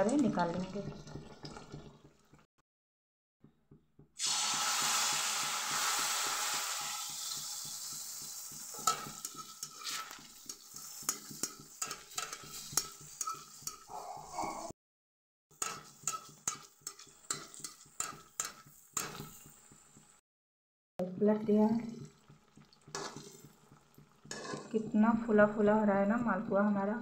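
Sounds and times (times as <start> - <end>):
batter sizzling in hot oil: 4.2 - 13.9, 15.5 - 20.2, 21.7 - 24.9
ladle tapping a pan: 7.2 - 13.9, 15.6 - 19.8, 22.0 - 24.8.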